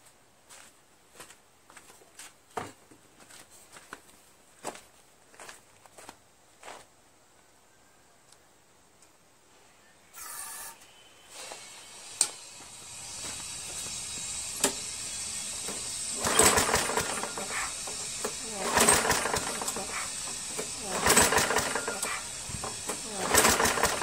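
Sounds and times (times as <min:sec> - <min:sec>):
lawn mower engine running unevenly: 0:12.6 - 0:24.0.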